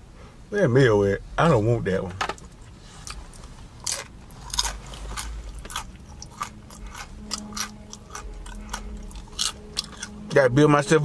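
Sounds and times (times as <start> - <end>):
chewing crisp fried food: 2.5 - 10.4.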